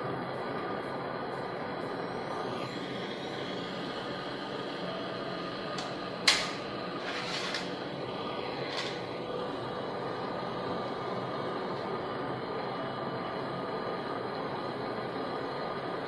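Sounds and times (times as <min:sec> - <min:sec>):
workshop hum: 0:00.0 - 0:16.0
scraping rattle: 0:06.4 - 0:07.8.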